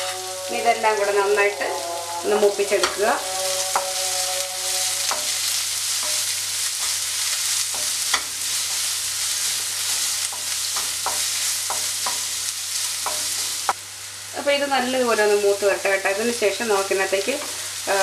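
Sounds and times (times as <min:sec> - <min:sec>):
spatula scraping a pan: 0:00.0 - 0:12.3
shallots sizzling in a pan: 0:00.0 - 0:18.0.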